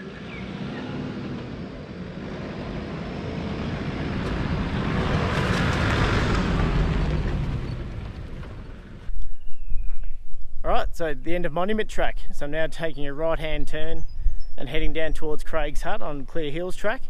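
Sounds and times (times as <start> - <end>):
vehicle engine passing by: 0.0 - 9.1.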